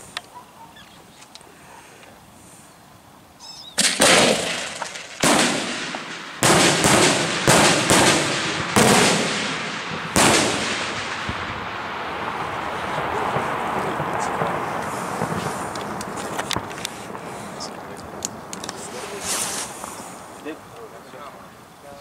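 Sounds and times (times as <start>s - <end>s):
firework bangs with rolling echo: 3.8s - 20.6s.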